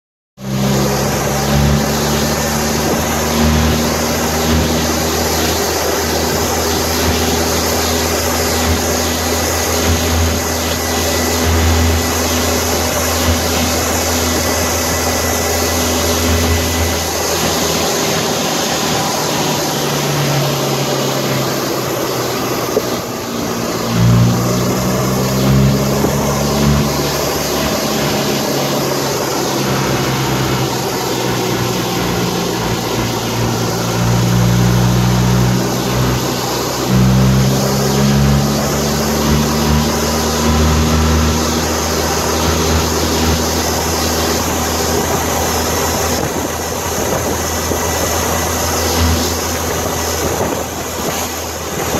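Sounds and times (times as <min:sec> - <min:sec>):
vehicle engine running: 0:00.4 - 0:51.9
wind and road noise: 0:00.4 - 0:51.9.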